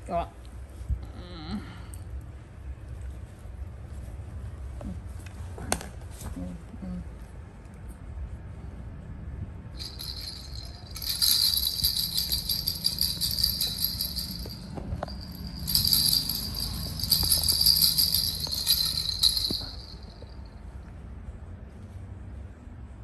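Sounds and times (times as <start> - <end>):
rattle toy bells jingling: 9.8 - 20.5.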